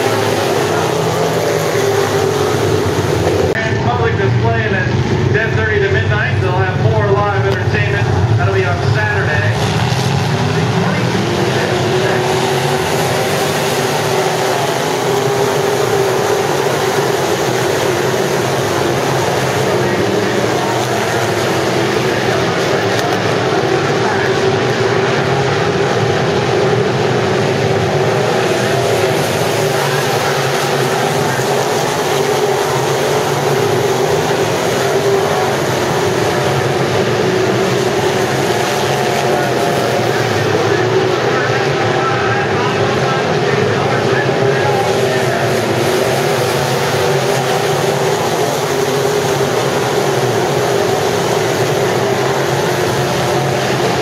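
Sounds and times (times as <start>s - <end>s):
race car engines droning: 0.0s - 54.0s.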